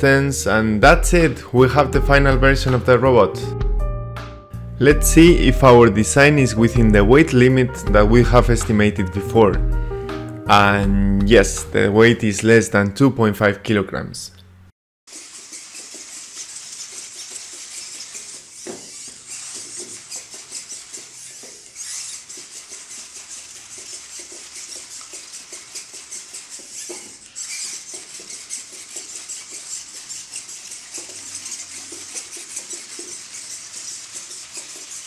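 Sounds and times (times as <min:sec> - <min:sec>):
robot servo motors buzzing: 0:15.1 - 0:35.0.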